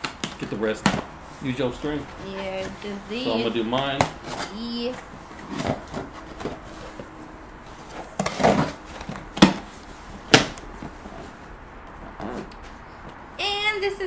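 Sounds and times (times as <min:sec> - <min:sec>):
cardboard rustling and scraping: 0:00.3 - 0:12.8
sharp knocks on cardboard: 0:09.4 - 0:09.7.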